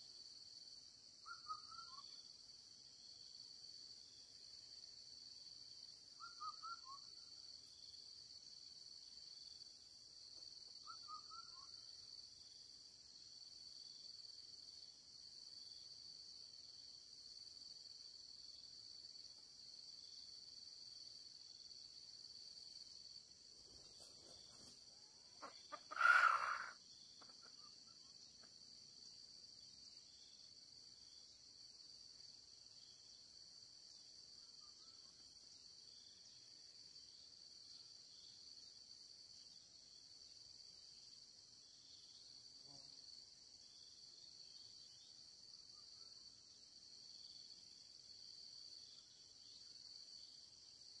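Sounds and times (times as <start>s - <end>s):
insects chirring: 0.0s - 51.0s
rooster crowing: 25.4s - 26.8s.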